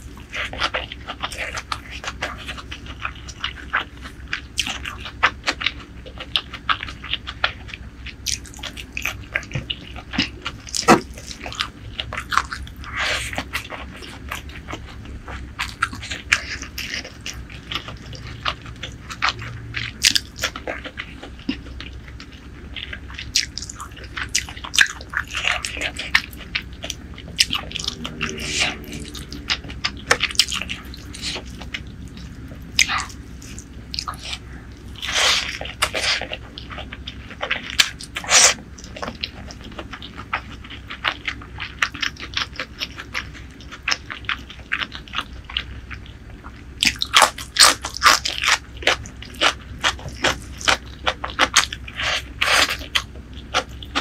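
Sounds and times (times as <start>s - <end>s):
wet chewing: 0.0s - 54.0s.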